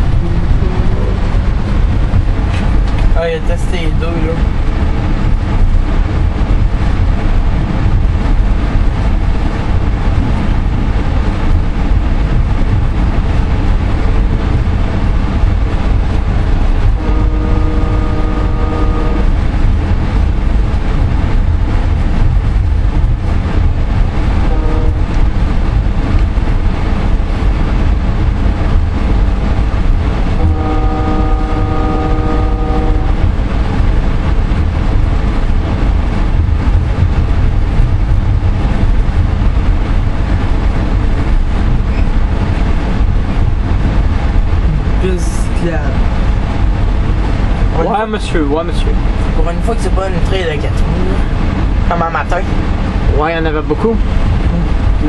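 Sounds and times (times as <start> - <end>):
train rumbling: 0.0 - 55.0
train horn blasts: 16.9 - 19.6, 24.4 - 25.2, 30.4 - 33.4.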